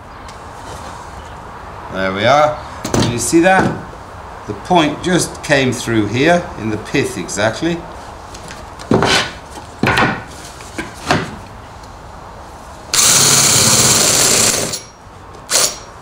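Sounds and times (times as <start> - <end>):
cordless drill boring into wood: 12.9 - 14.9, 15.5 - 15.8.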